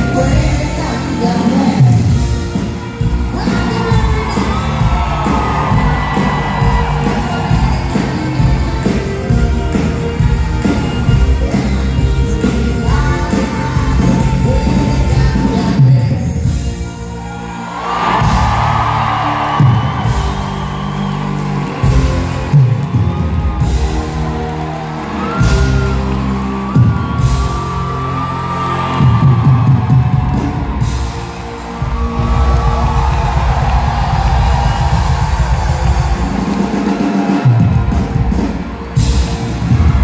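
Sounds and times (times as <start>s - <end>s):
bass and drum beat: 0.0s - 40.0s
live pop-rock band playing: 0.0s - 40.0s.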